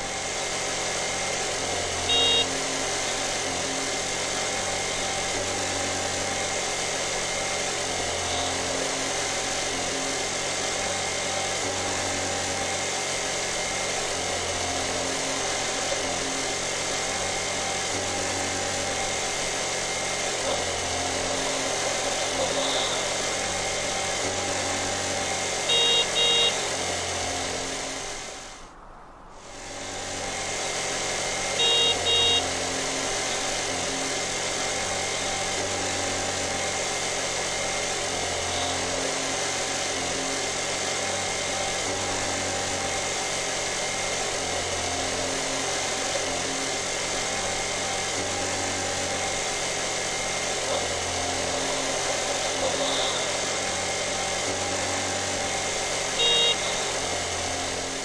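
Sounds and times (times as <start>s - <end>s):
scooter engine running: 0.0s - 28.7s, 29.4s - 58.0s
horn double beep: 2.0s - 2.7s, 22.3s - 23.4s, 25.6s - 26.8s, 31.6s - 33.5s, 52.5s - 53.5s, 56.1s - 57.1s.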